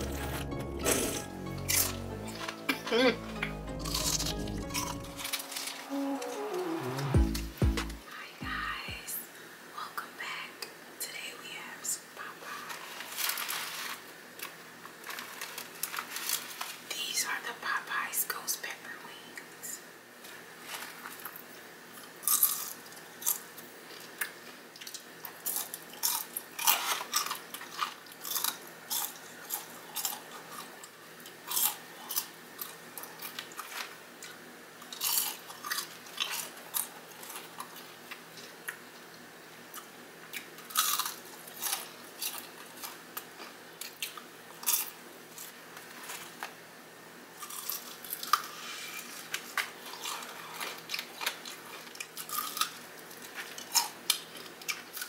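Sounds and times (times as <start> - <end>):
crunching fried chicken: 20.6 - 38.8, 39.8 - 46.4, 47.4 - 55.0.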